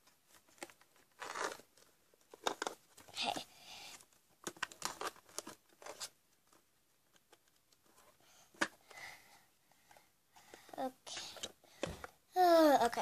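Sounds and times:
crinkly plastic rustling: 0.0s - 8.2s.

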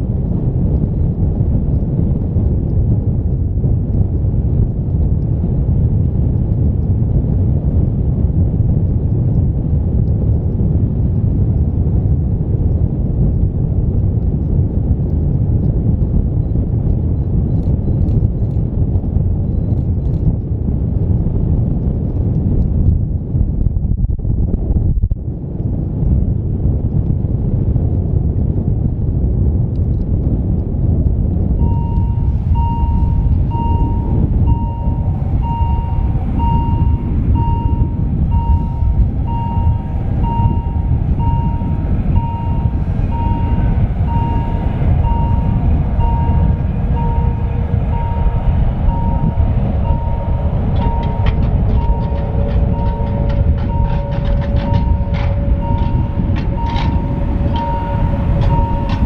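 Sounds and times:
wind buffeting microphone: 0.0s - 59.0s
electronic warning beeps: 31.6s - 59.0s.

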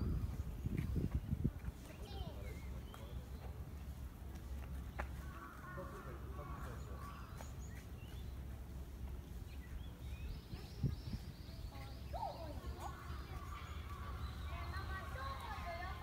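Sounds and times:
steady low rumble: 0.0s - 16.0s
distant voices: 1.4s - 16.0s
faint bird chirps: 9.4s - 15.1s.

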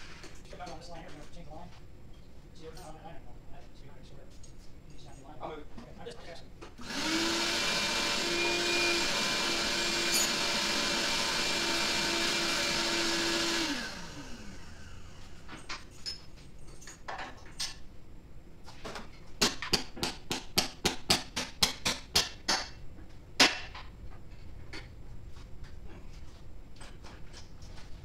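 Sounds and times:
shop vacuum running: 6.8s - 15.6s.

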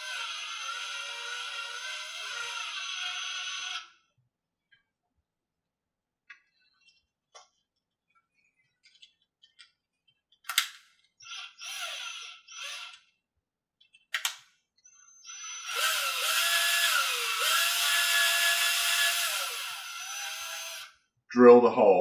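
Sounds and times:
cordless drill drilling metal: 0.0s - 4.0s, 11.2s - 13.1s, 15.2s - 21.0s.

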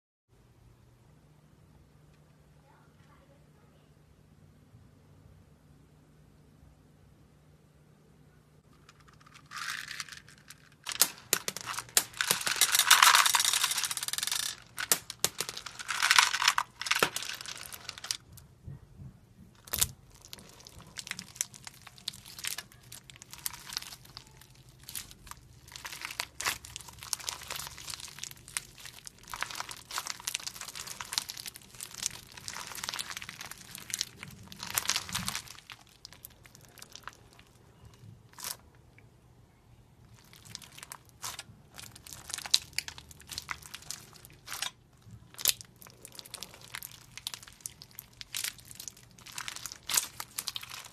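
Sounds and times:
sharp little clicks of beads: 8.9s - 18.2s
hands squishing slime: 19.6s - 37.5s, 40.1s - 50.9s.

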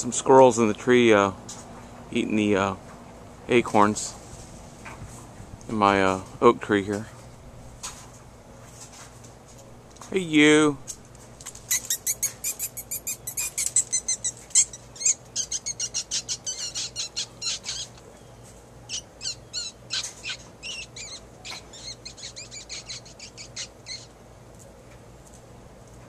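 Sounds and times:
high chattering calls: 11.7s - 18.0s, 18.9s - 24.1s.

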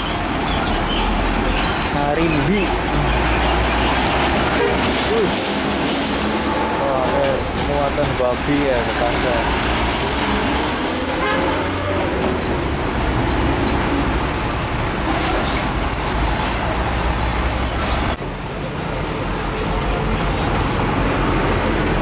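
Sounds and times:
diesel truck engines rumbling: 0.0s - 22.0s
road traffic noise: 0.0s - 22.0s.

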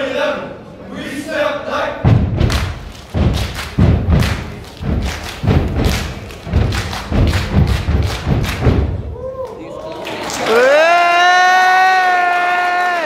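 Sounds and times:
heavy foot stomps: 2.0s - 9.1s
hand claps: 2.4s - 10.6s.

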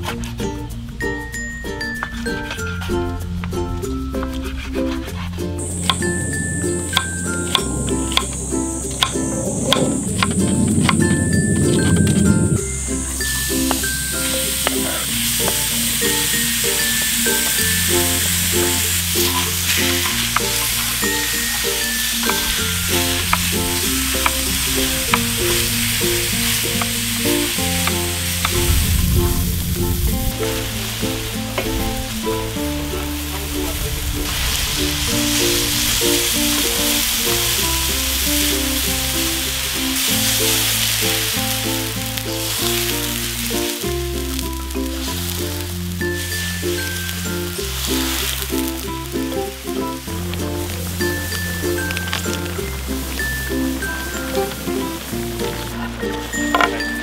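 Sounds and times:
background music: 0.0s - 57.0s
meat sizzling on a griddle: 11.8s - 57.0s.

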